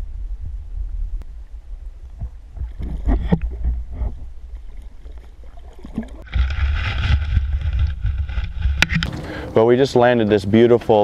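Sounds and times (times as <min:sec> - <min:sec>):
muffled underwater rumble: 0:00.0 - 0:09.5
knocks underwater: 0:02.1 - 0:09.2
fish splashing: 0:02.4 - 0:09.5.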